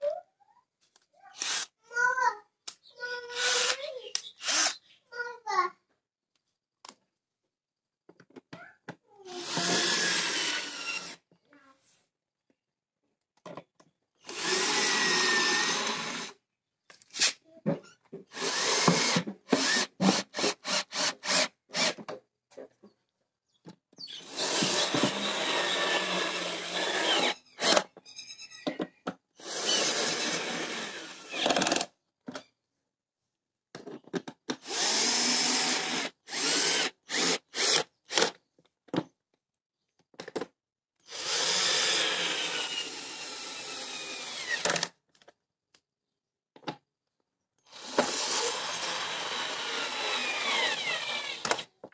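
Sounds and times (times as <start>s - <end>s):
cordless drill driving screws: 1.4s - 1.7s, 3.3s - 4.8s, 9.3s - 11.2s, 14.2s - 16.4s, 18.3s - 22.0s, 24.2s - 27.9s, 29.4s - 31.9s, 34.6s - 38.4s, 41.1s - 44.9s, 47.7s - 51.8s.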